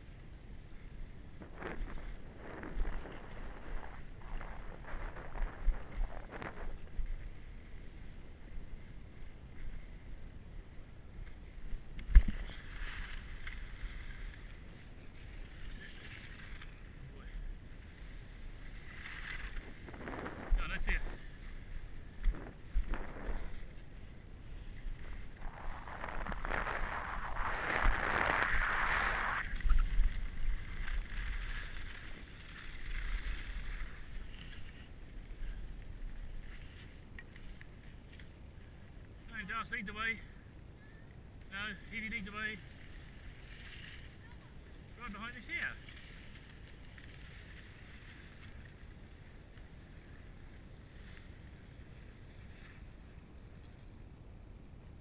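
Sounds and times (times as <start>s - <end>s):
wind buffeting microphone: 0.0s - 12.5s, 17.0s - 37.2s
skis scraping on packed snow: 0.7s - 10.0s, 12.3s - 38.4s, 41.5s - 53.0s
skis hissing on snow: 18.9s - 21.4s, 24.6s - 29.9s.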